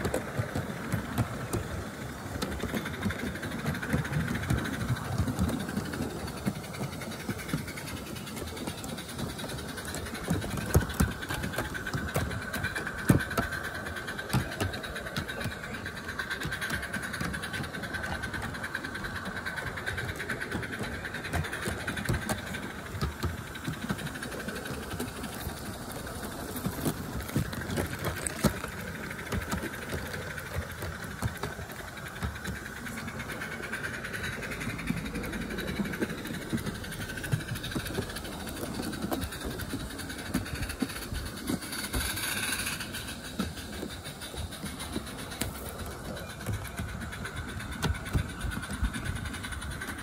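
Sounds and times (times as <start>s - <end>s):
exhaust chuffing: 0.0s - 50.0s
steam hissing: 0.0s - 50.0s
wheels clicking over track: 0.0s - 50.0s.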